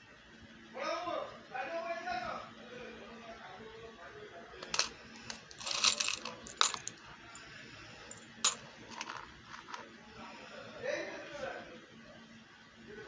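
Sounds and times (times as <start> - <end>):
metal charms clinking: 4.6 - 7.0, 8.1 - 9.8.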